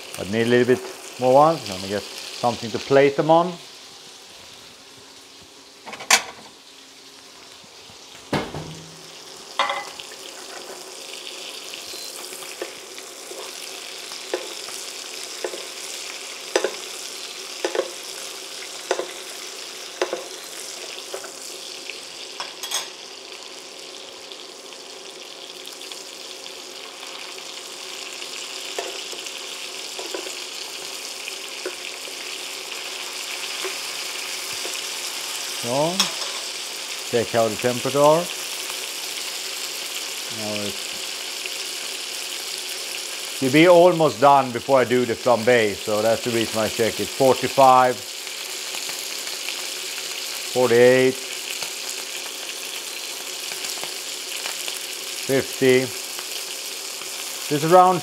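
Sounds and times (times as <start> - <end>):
meat sizzling in butter: 0.0 - 58.0
loud knocks: 8.3 - 9.0
metal spoon clicking on pan: 16.5 - 16.8, 17.6 - 18.0, 18.9 - 19.1, 20.0 - 20.3.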